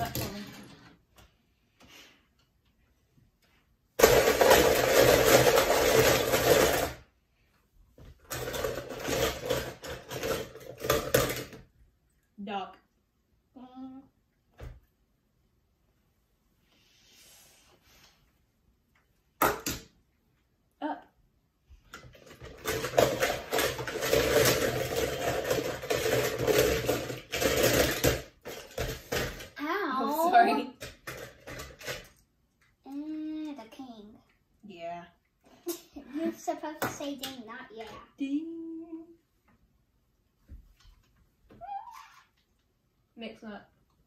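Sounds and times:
toy cars rattling in plastic bowl: 0:04.0 - 0:07.1, 0:08.2 - 0:11.7, 0:22.0 - 0:29.8, 0:30.7 - 0:32.2.

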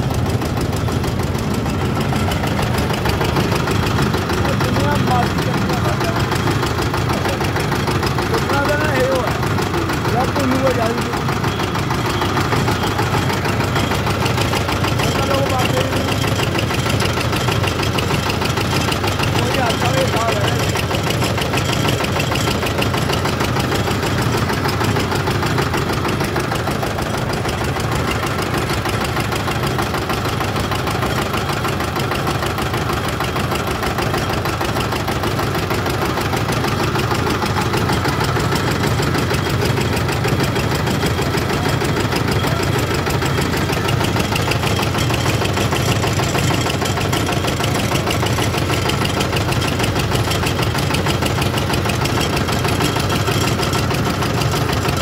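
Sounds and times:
extruding machine running: 0:00.0 - 0:55.0.

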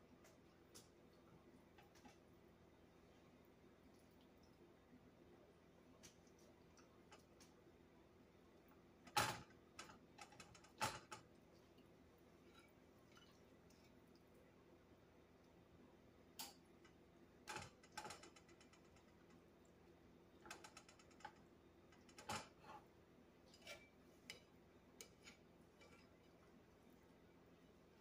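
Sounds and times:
faint steady hum: 0:00.0 - 0:28.0
metal tongs clicking and scraping: 0:23.5 - 0:26.3.

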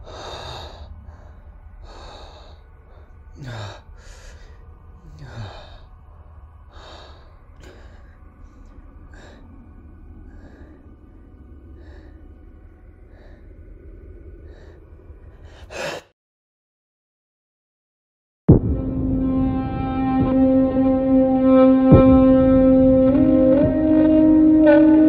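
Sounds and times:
man gasping: 0:00.0 - 0:05.9, 0:15.4 - 0:16.1
low steady rumble: 0:00.0 - 0:15.9, 0:18.5 - 0:25.0.

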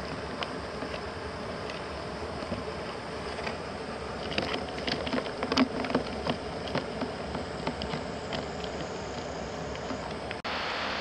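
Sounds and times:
crab claws clicking on plastic bucket: 0:04.2 - 0:10.2
steady hiss: 0:06.5 - 0:11.0.

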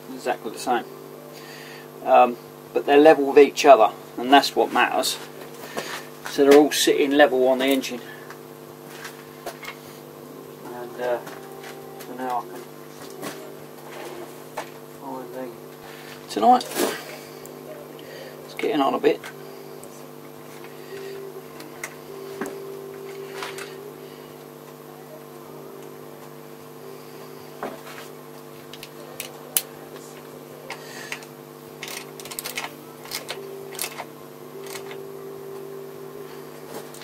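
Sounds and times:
background hum: 0:00.0 - 0:37.0.

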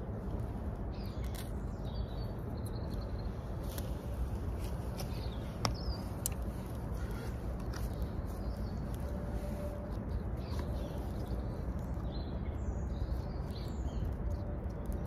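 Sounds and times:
low woodland rumble: 0:00.0 - 0:15.0
bird chirps: 0:04.9 - 0:15.0.

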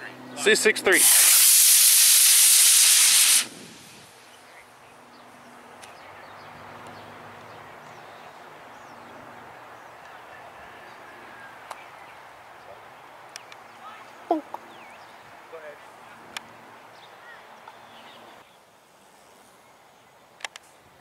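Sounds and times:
rocket motor hissing: 0:00.9 - 0:04.2
faint wind rush: 0:00.9 - 0:04.6.

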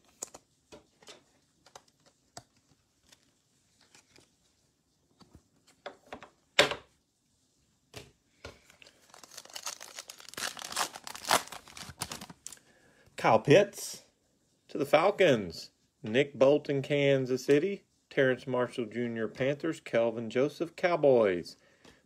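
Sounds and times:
foil pack tearing and crinkling: 0:08.9 - 0:12.6.

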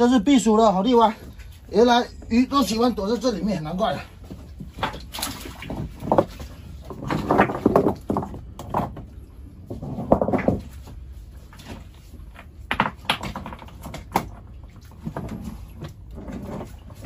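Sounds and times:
stones knocking together: 0:06.9 - 0:09.1, 0:12.7 - 0:14.3.

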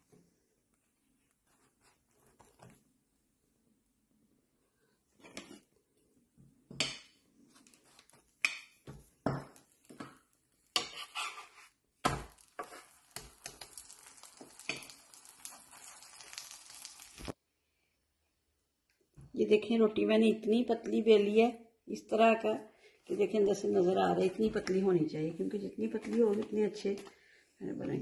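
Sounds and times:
pastry sizzling: 0:06.9 - 0:17.4
spatula scraping on griddle: 0:10.7 - 0:11.8, 0:12.4 - 0:13.7.

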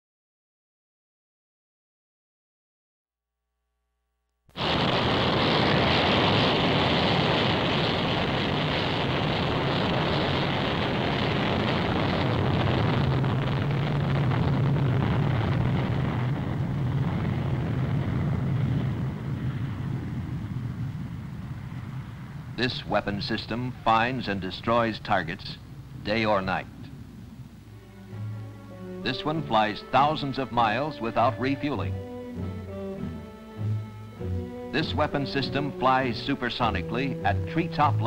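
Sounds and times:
jet engines roaring in afterburner: 0:04.6 - 0:38.0
low drone: 0:07.2 - 0:38.0.

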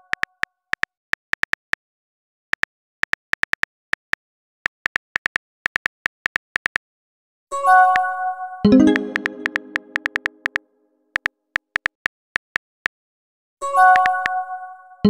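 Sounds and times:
keyboard typing clicks: 0:00.0 - 0:01.7, 0:04.9 - 0:06.8, 0:08.7 - 0:10.6, 0:11.2 - 0:12.6, 0:13.9 - 0:14.4.

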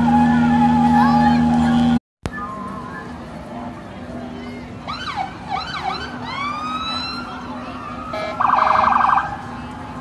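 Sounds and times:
electronic emergency siren: 0:08.1 - 0:09.4.

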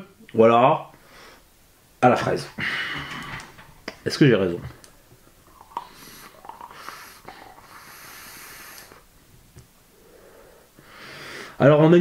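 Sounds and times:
quiet breathing: 0:00.9 - 0:01.6, 0:02.5 - 0:03.6, 0:04.7 - 0:09.2, 0:09.8 - 0:11.6
vapour exhaled with airy hiss: 0:05.7 - 0:09.1.

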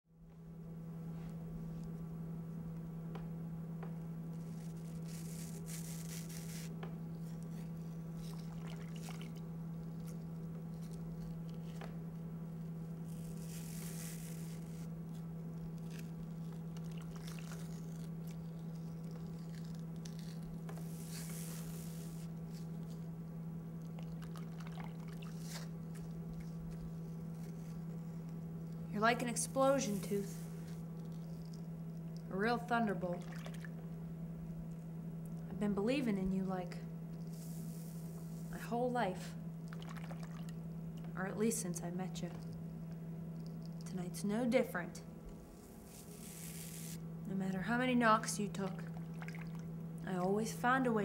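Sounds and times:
low steady hum: 0:00.1 - 0:51.0
wet bandage squishing and dripping: 0:08.4 - 0:09.5, 0:23.9 - 0:25.6, 0:39.7 - 0:40.6, 0:48.8 - 0:49.7.

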